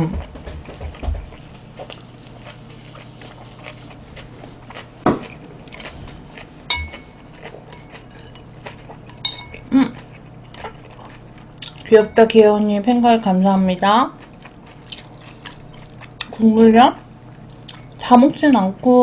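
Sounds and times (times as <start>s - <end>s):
chopsticks clinking against bowl: 6.7s - 9.7s.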